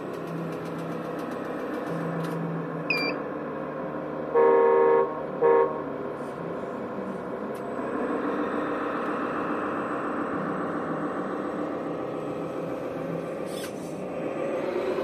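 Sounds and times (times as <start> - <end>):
diesel truck idling: 0.0 - 15.0
truck horn toots: 4.3 - 5.9.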